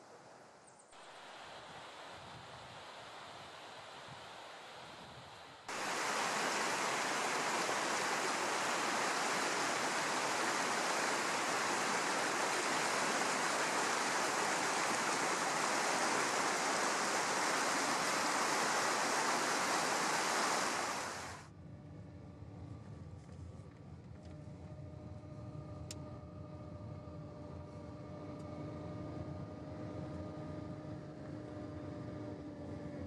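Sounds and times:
river rushing over rocks: 5.7 - 21.4.

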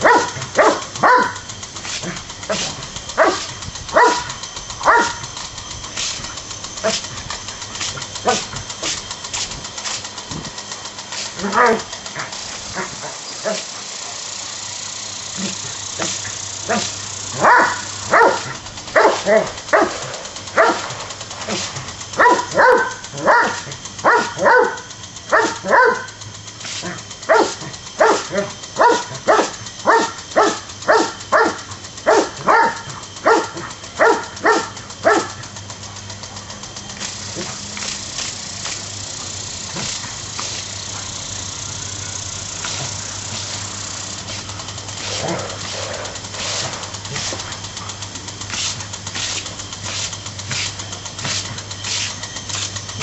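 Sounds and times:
dog barking: 0.0 - 1.5, 3.2 - 5.3, 15.4 - 20.0, 20.6 - 20.9, 22.2 - 26.2, 26.8 - 35.4.

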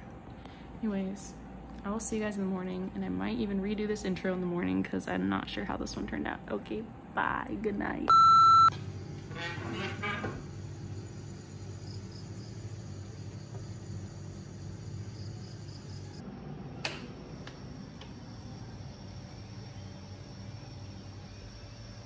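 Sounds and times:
steady low hum: 0.0 - 22.0
insects chirping faintly: 10.2 - 16.2, 17.1 - 22.0.

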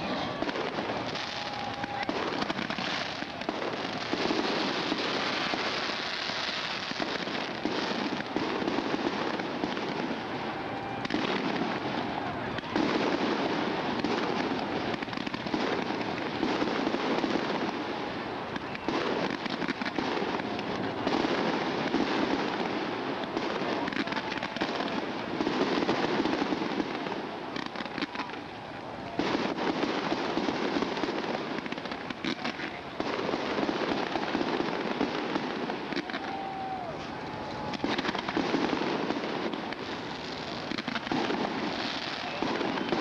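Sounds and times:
fireworks crackling and popping: 0.0 - 43.0.

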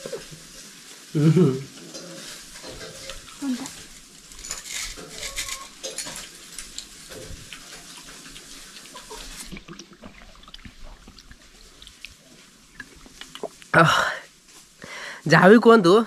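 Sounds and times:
clicks of eating from steel plate: 1.8 - 9.6
gulping water from plastic bottle: 7.1 - 13.7.

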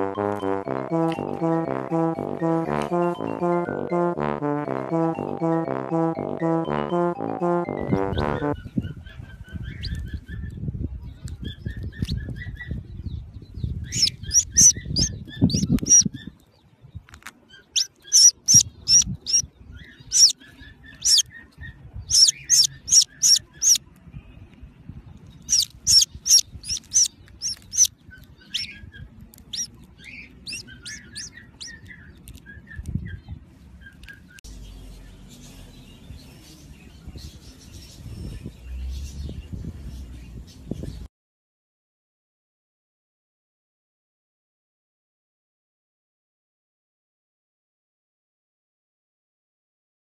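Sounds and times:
chick peeping: 7.9 - 16.4, 17.6 - 23.8, 25.3 - 34.4
fainter lower chirping: 13.8 - 16.3, 17.5 - 21.5, 22.1 - 23.8, 25.4 - 33.2.

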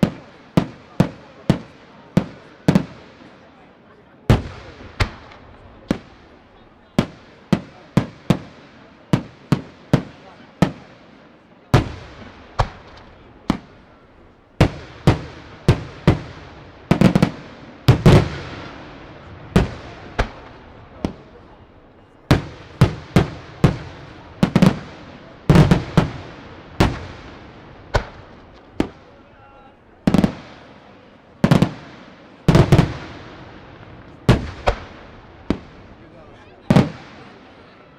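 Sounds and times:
firework shells bursting with booms: 4.3 - 6.4, 7.0 - 21.5, 22.2 - 29.1, 30.0 - 36.0.

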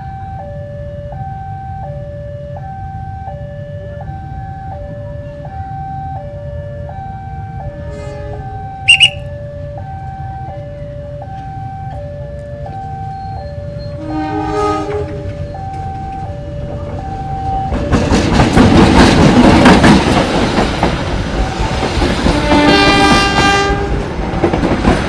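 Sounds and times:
two-tone crossing alarm: 0.0 - 18.3
high-pitched horn blasts: 7.7 - 9.3, 13.9 - 15.5.

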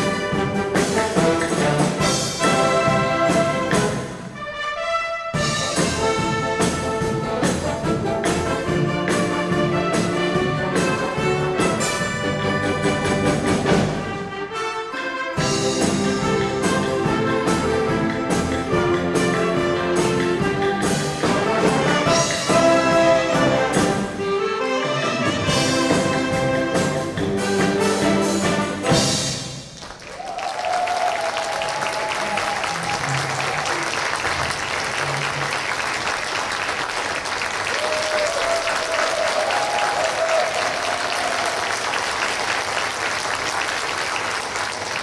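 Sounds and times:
wind orchestra playing: 0.0 - 29.7.

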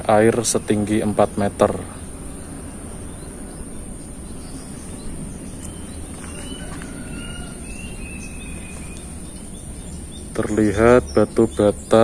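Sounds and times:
insect drone: 0.0 - 12.0
low steady rumble: 0.0 - 12.0
whistled bird calls: 1.7 - 12.0.

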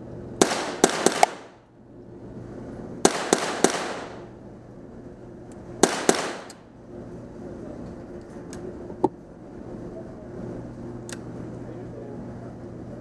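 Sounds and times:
rifle shots with echo: 0.4 - 1.6, 3.0 - 4.2, 5.8 - 6.6.

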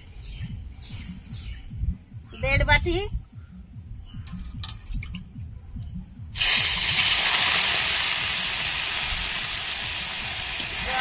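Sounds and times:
water pouring into pan: 6.4 - 11.0.

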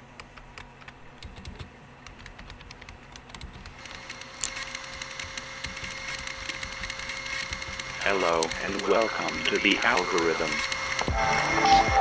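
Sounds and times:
high held synthesizer tone: 7.9 - 12.0
synthesizer hiss: 11.1 - 12.0.

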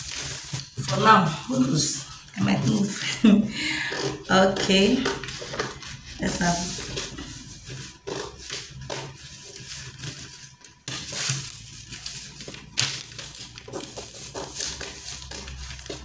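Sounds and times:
scissors snipping paper: 10.9 - 16.0.

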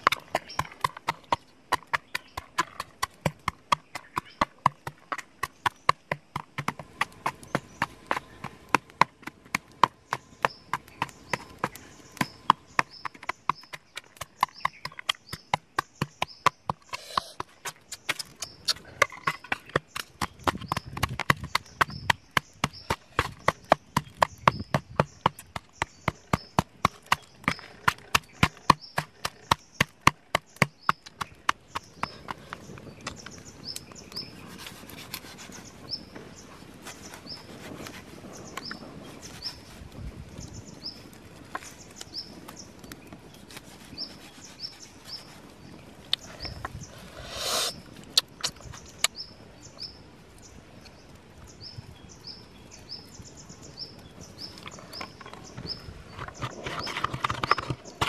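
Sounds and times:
pestle pounding on metal tray: 0.0 - 18.4, 19.0 - 32.1.

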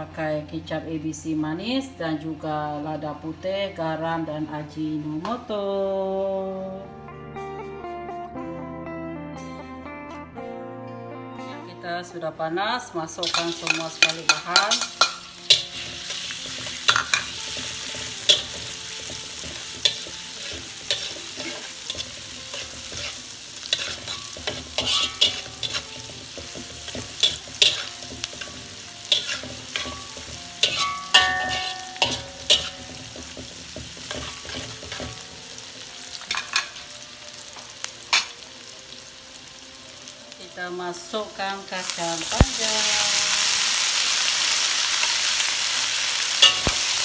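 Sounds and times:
metal spatula scraping wok: 13.2 - 37.0
food sizzling in hot oil: 13.2 - 47.0.

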